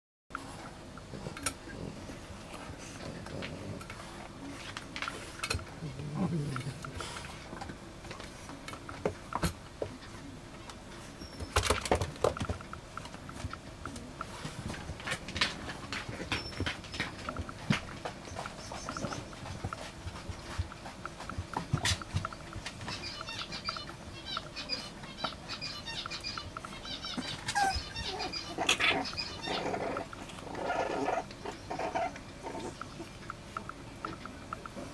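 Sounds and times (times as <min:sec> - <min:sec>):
puppies growling and grunting: 0:00.4 - 0:04.5, 0:05.3 - 0:07.6, 0:27.1 - 0:33.2
paws scrabbling on plastic: 0:11.2 - 0:24.4
puppy whining: 0:22.9 - 0:33.2.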